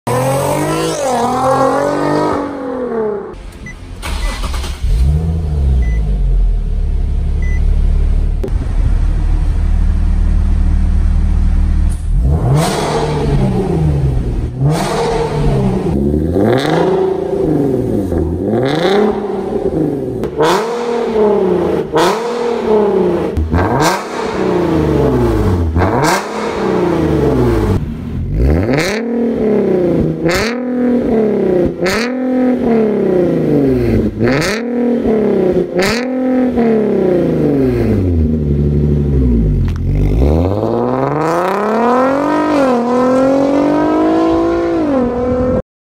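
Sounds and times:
car engine revving: 0:00.1 - 0:45.6
car engine idling: 0:03.4 - 0:12.3.

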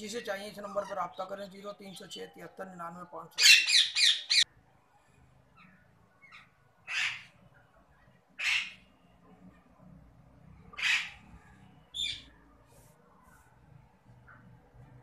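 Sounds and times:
parakeets squawking: 0:03.4 - 0:04.4, 0:06.2 - 0:07.3, 0:08.4 - 0:08.8, 0:10.7 - 0:11.2.

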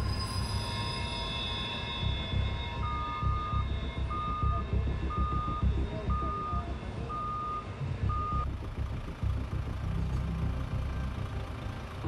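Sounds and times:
crane warning beeper: 0:00.0 - 0:08.5
heavy engine running: 0:00.0 - 0:12.0.

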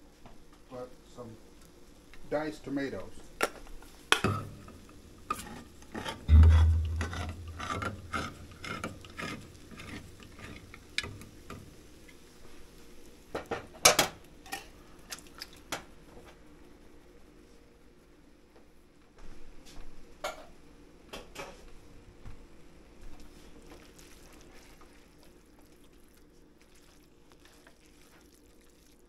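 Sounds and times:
heavy thump: 0:06.3 - 0:08.6.

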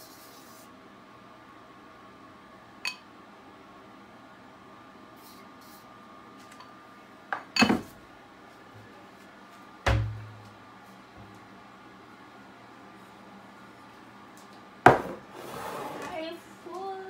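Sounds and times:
kitchenware clattering: 0:07.6 - 0:07.9.

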